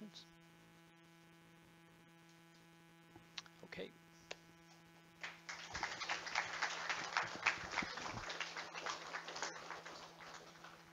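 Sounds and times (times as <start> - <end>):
audience clapping: 5.2 - 10.9.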